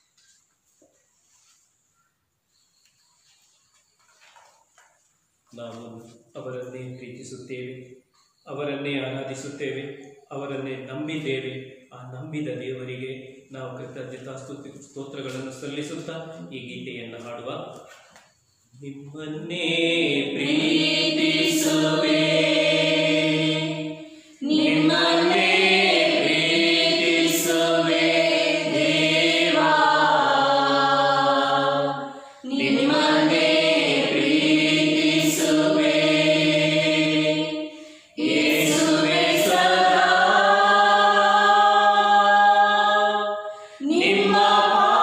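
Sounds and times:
person singing slow hymn: 19.1 - 45.0.

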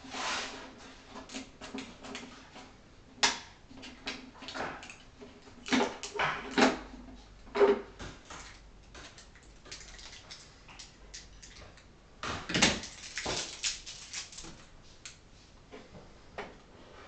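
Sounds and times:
packaging rustling: 8.4 - 11.6, 12.6 - 14.7.

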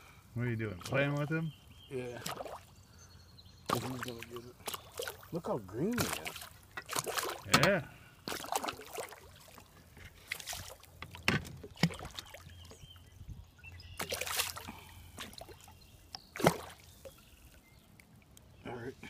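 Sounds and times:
fish thrashing and splashing: 2.2 - 2.7, 3.7 - 7.5, 8.2 - 12.7, 14.0 - 17.2.

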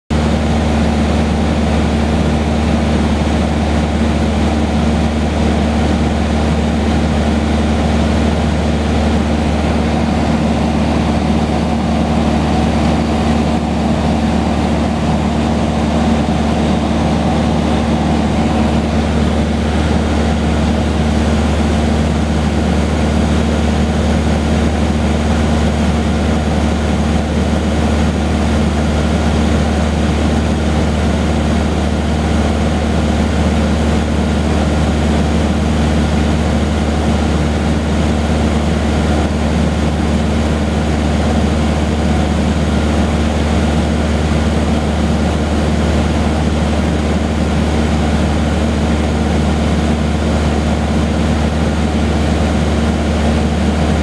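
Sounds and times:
small plane engine droning: 0.1 - 54.0.

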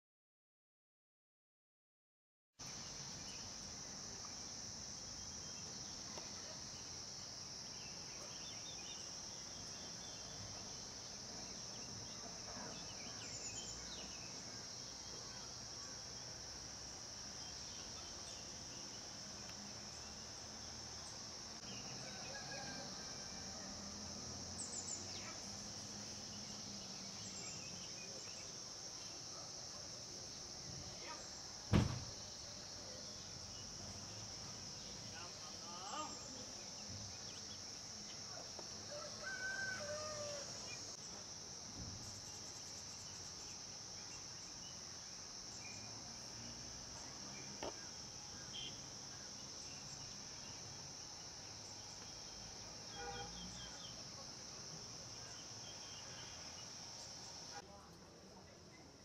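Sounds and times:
insects droning: 2.6 - 59.0
sharp thump: 31.7 - 32.2.

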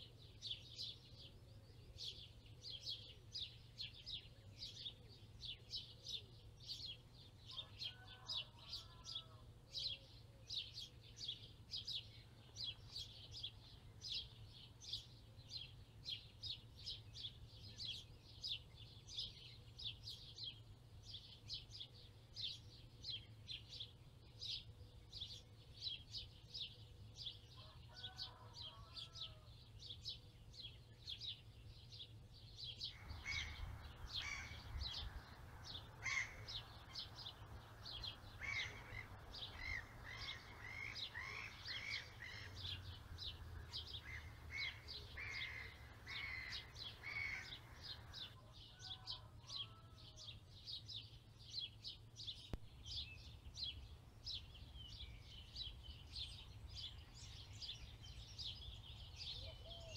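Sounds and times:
songbirds chirping: 0.0 - 59.9
low loud bird calls: 32.8 - 50.3, 52.3 - 59.9.

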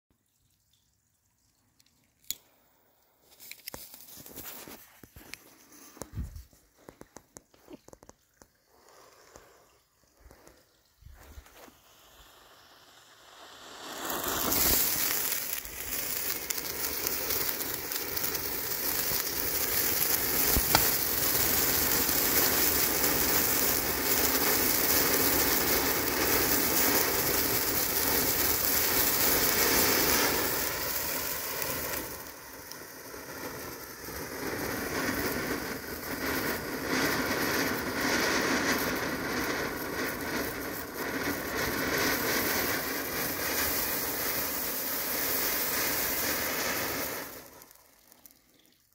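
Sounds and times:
firework fountain rushing and crackling: 1.5 - 48.9
sharp pop: 20.6 - 21.0.

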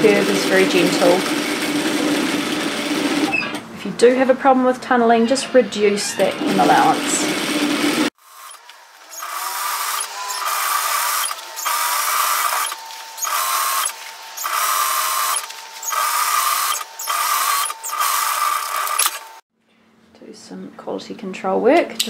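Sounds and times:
sewing machine stitching: 0.0 - 3.6, 6.2 - 19.4.

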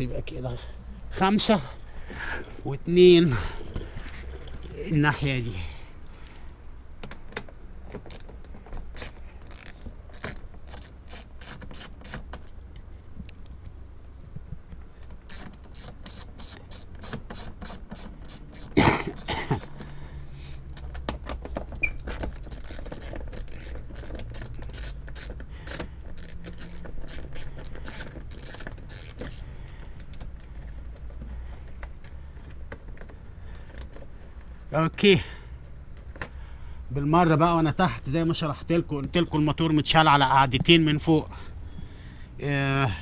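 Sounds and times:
ratchet wrench clicking: 9.0 - 12.6, 15.2 - 19.8, 21.8 - 30.5.

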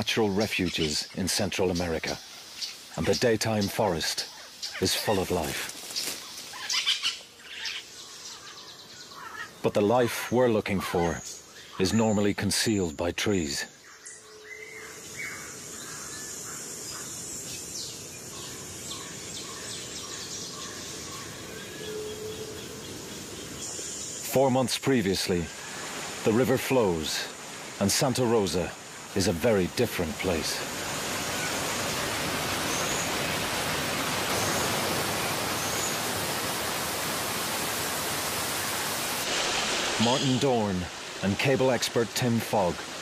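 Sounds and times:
water rushing: 0.0 - 8.5, 14.8 - 43.0
birds chirping and whistling: 13.8 - 24.3, 30.4 - 36.5.

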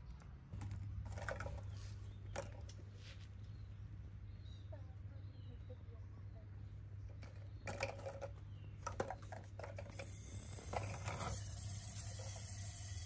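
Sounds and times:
water running from a tap: 11.3 - 13.0.

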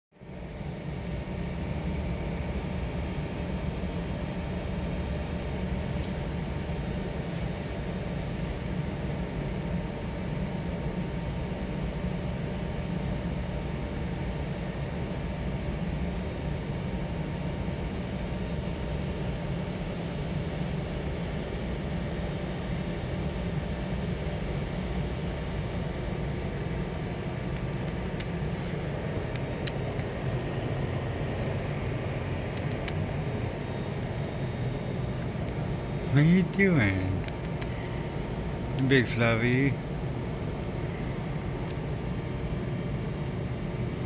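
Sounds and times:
industrial machinery humming: 0.2 - 44.0
machinery droning: 25.9 - 44.0.

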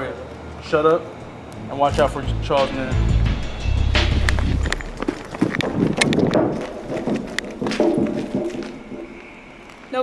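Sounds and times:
running footsteps: 3.4 - 10.0.

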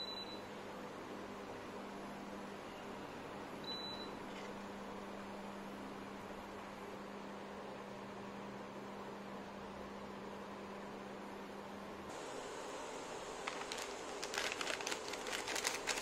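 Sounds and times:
faint fan hiss: 0.0 - 16.0
induction cooktop humming: 0.0 - 16.0.

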